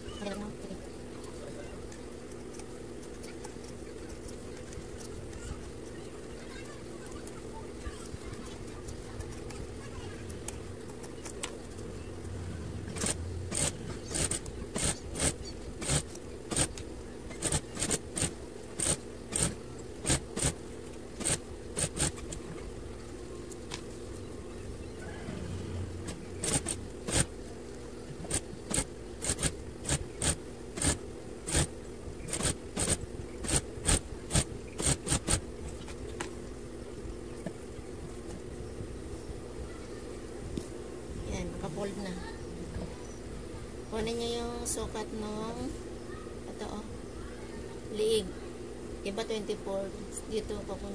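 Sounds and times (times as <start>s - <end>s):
sewing machine running: 12.8s - 20.6s, 21.2s - 22.3s, 26.0s - 27.3s, 28.3s - 35.4s.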